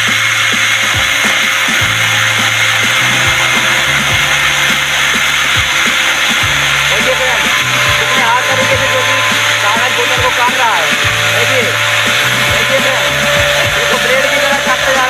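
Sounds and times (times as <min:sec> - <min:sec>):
angle grinder cutting plastic: 0:00.0 - 0:15.0.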